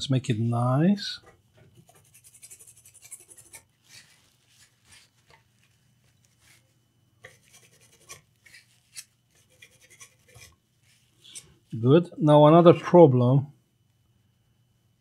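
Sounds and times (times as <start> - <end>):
faint scrubbing on circuit board: 1.8 - 11.4.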